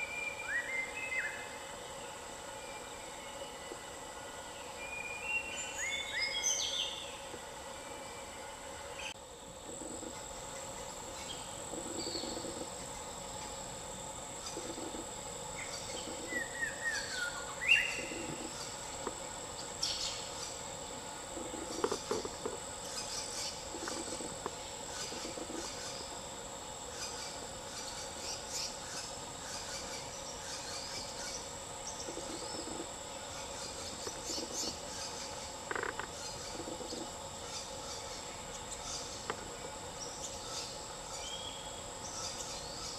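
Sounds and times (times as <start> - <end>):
insect chorus: 0.0 - 42.9
bird calls: 15.6 - 19.0.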